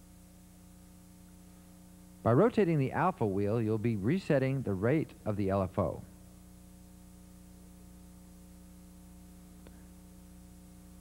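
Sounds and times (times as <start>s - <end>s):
electrical hum with hiss: 0.0s - 11.0s.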